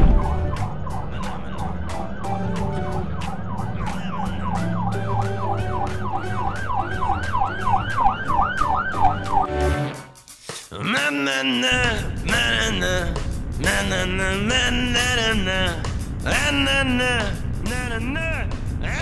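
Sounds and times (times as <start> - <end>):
low steady drone: 0.0 - 8.1
police siren yelping: 0.0 - 9.5.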